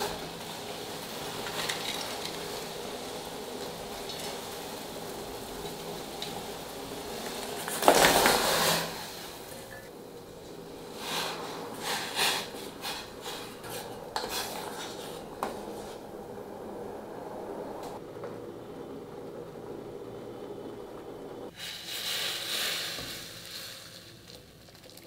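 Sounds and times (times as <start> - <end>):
water boiling in a pot: 0.0 - 25.0
spoon knocking and scraping pot: 13.3 - 15.9.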